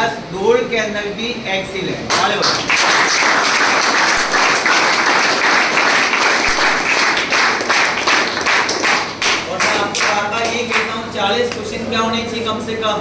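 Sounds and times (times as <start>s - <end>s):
crowd applause: 2.2s - 10.2s.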